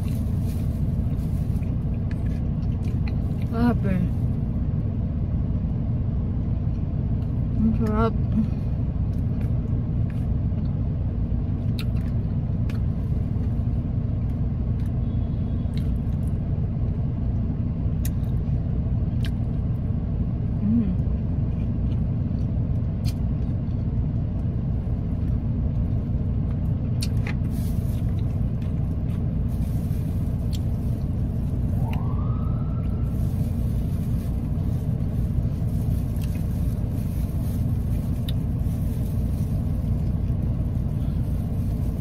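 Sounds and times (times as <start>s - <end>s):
car idling rumble: 0.0s - 42.0s.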